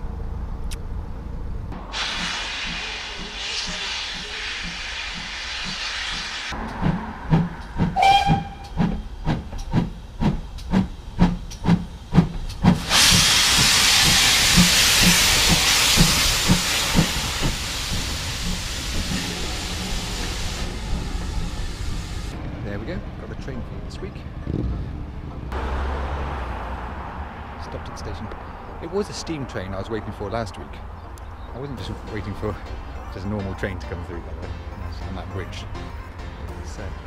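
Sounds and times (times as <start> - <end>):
steam locomotive exhaust chuffs: 1.7 - 22.4
steam hiss: 1.8 - 6.6, 7.8 - 22.4
loud rush of steam: 1.8 - 22.4
locomotive whistle: 6.8 - 9.1.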